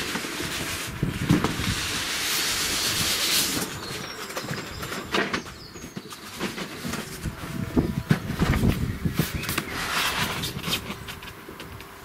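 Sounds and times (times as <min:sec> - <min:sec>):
cardboard rustling and scraping: 0:00.0 - 0:11.7.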